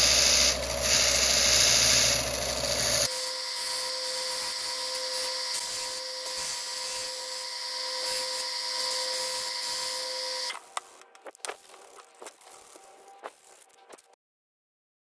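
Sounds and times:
belt sander running: 0.0 - 10.5.

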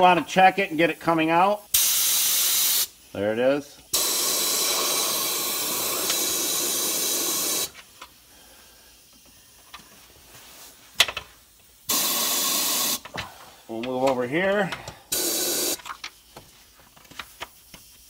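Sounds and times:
air sprayer hissing: 1.6 - 3.2, 3.8 - 9.6, 11.8 - 13.8, 15.0 - 16.7.

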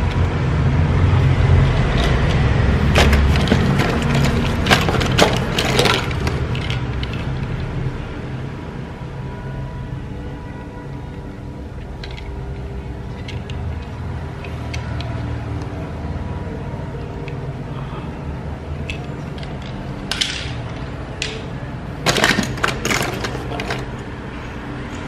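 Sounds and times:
toy vehicles clattering: 1.8 - 7.9, 11.7 - 15.2, 18.8 - 24.2.

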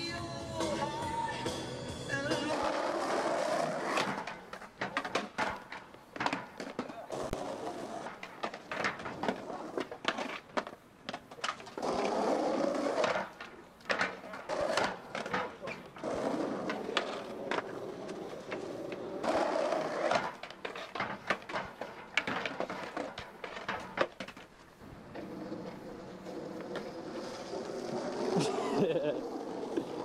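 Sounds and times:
skateboard wheels rolling on asphalt: 0.0 - 30.0
skateboard clacks snapping and landing: 2.4 - 24.5.

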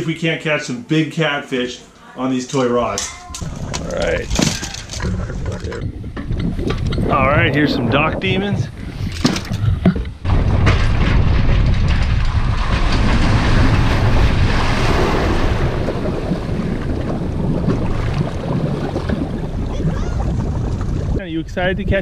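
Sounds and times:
water churning and sloshing: 3.0 - 21.3
wind rumbling on microphone: 3.3 - 22.0.

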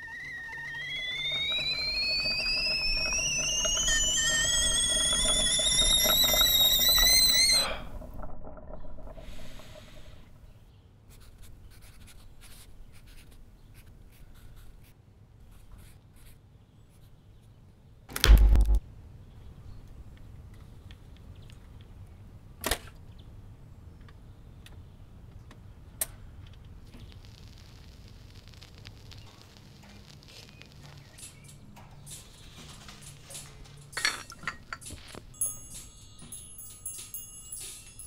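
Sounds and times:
kettle whistle rising in pitch: 0.0 - 7.9
short loud thump: 18.1 - 18.8.

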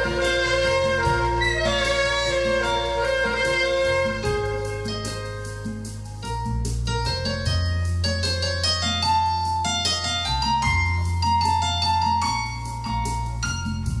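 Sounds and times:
alto saxophone melody: 0.0 - 5.9
sustained bass: 0.0 - 9.6, 10.5 - 14.0
electronic keyboard accompaniment: 0.0 - 14.0.

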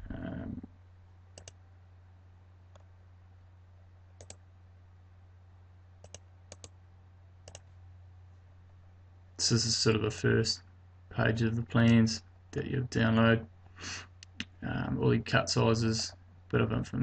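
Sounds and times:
faint low hum: 0.0 - 17.0
computer mouse clicking: 1.4 - 1.6, 4.2 - 4.4, 6.0 - 6.8, 7.4 - 7.7.

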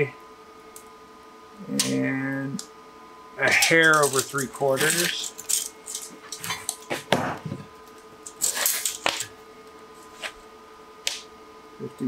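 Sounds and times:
faint steady hum: 0.0 - 12.0
tape measure clicking and rattling: 3.7 - 6.8.

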